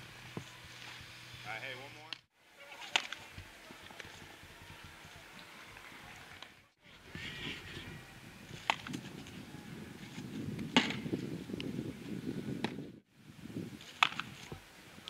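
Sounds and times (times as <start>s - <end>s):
low outdoor noise: 0.0s - 15.0s
ball hitting leather glove: 8.6s - 9.0s, 10.6s - 11.1s, 12.6s - 12.8s, 13.9s - 14.3s
baseball bat cracks: 10.8s - 11.0s, 13.9s - 14.3s.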